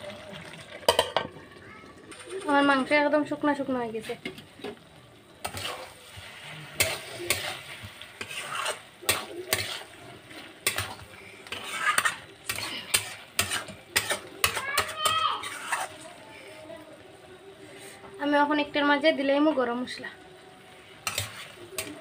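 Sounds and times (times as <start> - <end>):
low sizzle of frying: 0.0 - 22.0
metal spatula scraping a pan: 5.4 - 16.7, 20.6 - 22.0.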